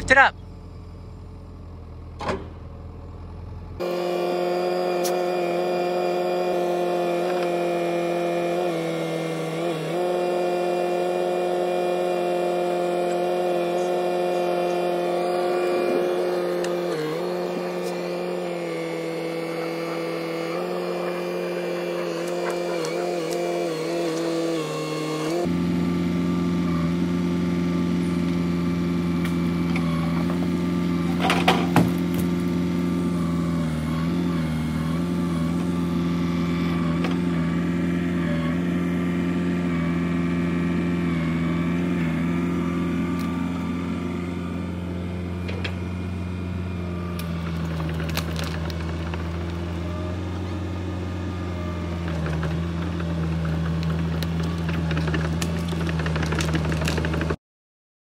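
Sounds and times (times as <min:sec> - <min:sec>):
excavator diesel engine running: 0:00.0 - 0:57.4
sharp knocks of logs: 0:31.1 - 0:32.4.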